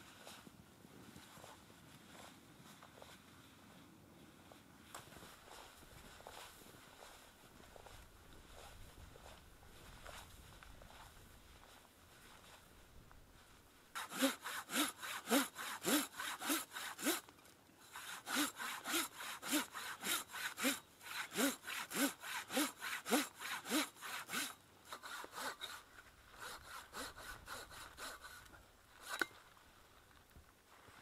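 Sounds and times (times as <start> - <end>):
hand saw cutting wood: 14.0 - 29.3.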